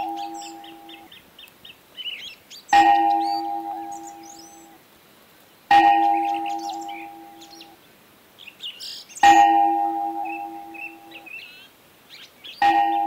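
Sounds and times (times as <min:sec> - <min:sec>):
birds chirping: 0:00.0 - 0:04.8, 0:05.7 - 0:07.8, 0:08.4 - 0:13.0
bell ringing: 0:09.2 - 0:11.1.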